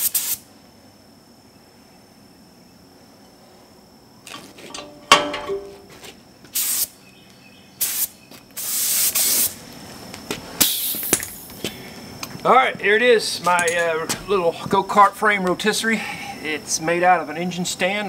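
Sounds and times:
paint spray gun hissing: 0.0 - 0.4, 6.5 - 7.0, 7.8 - 9.6, 10.6 - 11.1.

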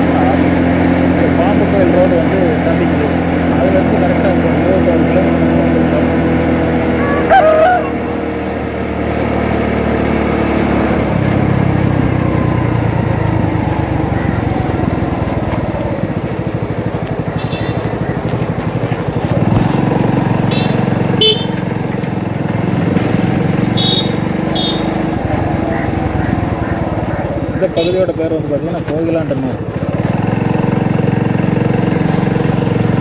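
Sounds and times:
motorcycle engine running: 0.0 - 33.0
horn toot: 7.0 - 8.2, 20.4 - 21.6, 23.8 - 25.1.

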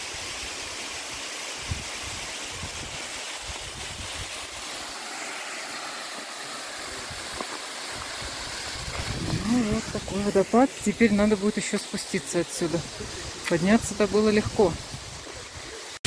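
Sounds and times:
waterfall rushing: 0.0 - 16.0
wind buffeting microphone: 8.2 - 10.3.

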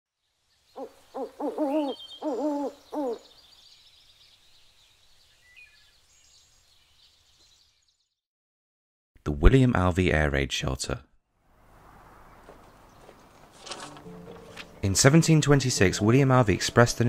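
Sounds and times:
owl hooting: 0.8 - 3.4.

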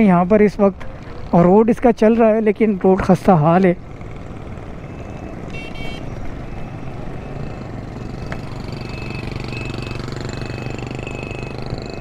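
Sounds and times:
road noise: 0.0 - 12.0
motorcycle engine running: 3.8 - 12.0
high beep: 8.8 - 12.0.

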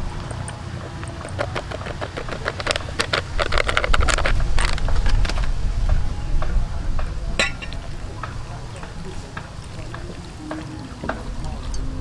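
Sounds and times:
plastic sachet crinkling: 0.6 - 5.5.

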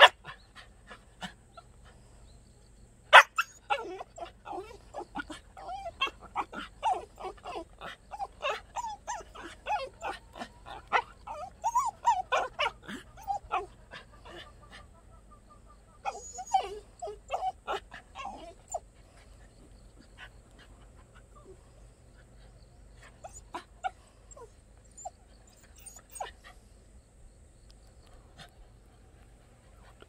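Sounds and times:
dog whining: 3.2 - 14.4, 16.0 - 18.8, 23.1 - 26.4.

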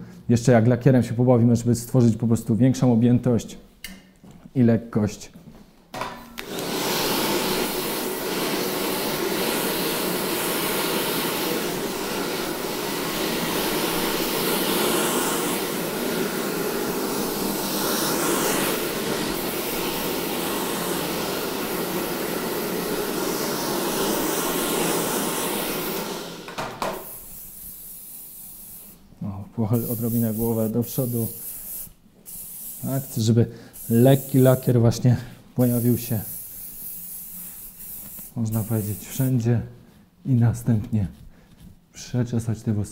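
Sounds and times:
hair dryer air hiss: 6.4 - 29.1, 29.7 - 39.5.

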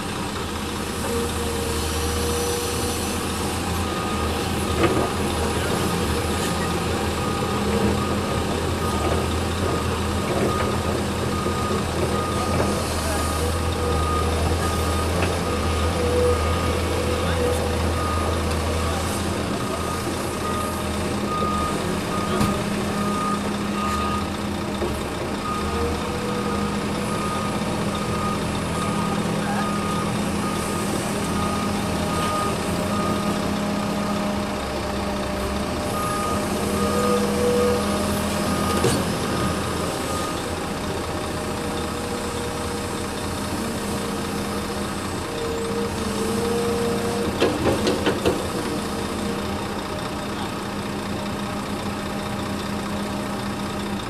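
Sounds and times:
heavy truck engine running: 0.0 - 54.0
reversing alarm beeping: 3.7 - 5.0, 5.6 - 24.4, 25.4 - 34.6, 35.8 - 40.8.

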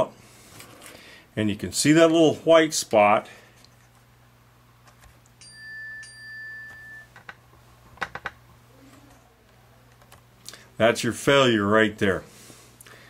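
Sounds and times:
faint electrical hum: 0.0 - 13.0
high-pitched tone: 5.4 - 7.1.

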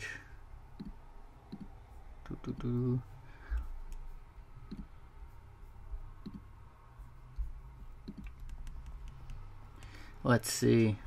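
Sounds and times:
low steady hum: 0.0 - 11.0
faint mouse clicks: 8.0 - 10.0.

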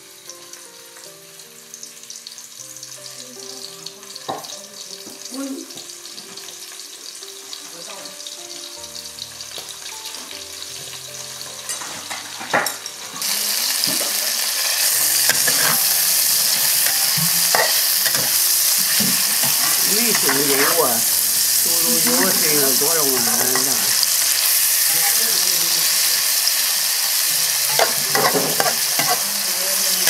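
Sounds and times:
food sizzling in a wok: 0.0 - 30.0
metal ladle scraping a wok: 14.4 - 22.4, 27.0 - 29.2.

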